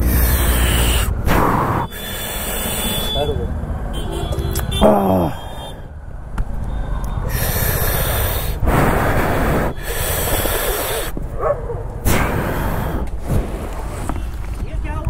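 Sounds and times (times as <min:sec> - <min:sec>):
heavy breathing: 0:00.0 - 0:03.4, 0:04.8 - 0:06.0, 0:07.1 - 0:14.0.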